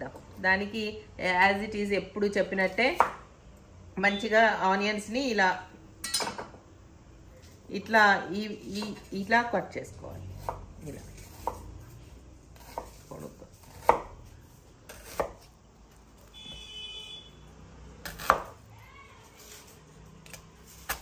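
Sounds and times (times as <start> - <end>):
knife chopping on cutting board: 3.0 - 3.2, 11.2 - 11.7, 12.6 - 14.2, 14.9 - 15.5, 18.0 - 18.6.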